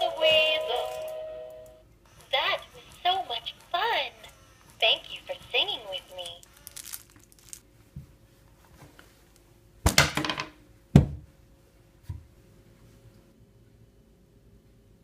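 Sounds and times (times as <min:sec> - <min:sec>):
wrapper crinkling: 0:04.8 - 0:07.7.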